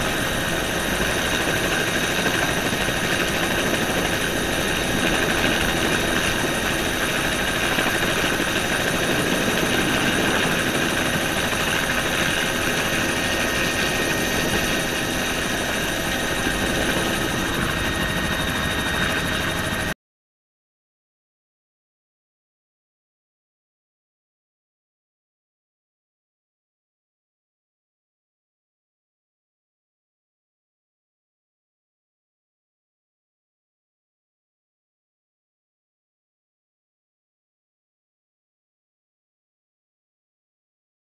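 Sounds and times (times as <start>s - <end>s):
helicopter engine and rotor: 0.0s - 20.0s.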